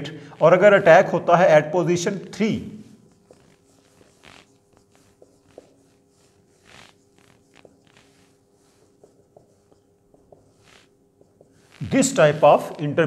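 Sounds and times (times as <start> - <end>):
marker squeaking on whiteboard: 0.0 - 12.8
faint steady hum: 0.0 - 13.0.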